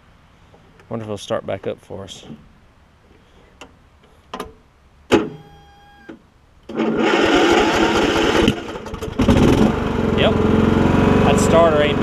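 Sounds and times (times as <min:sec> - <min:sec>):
electric starter cranking: 0:06.7 - 0:09.9
lawn tractor engine running: 0:06.7 - 0:12.0.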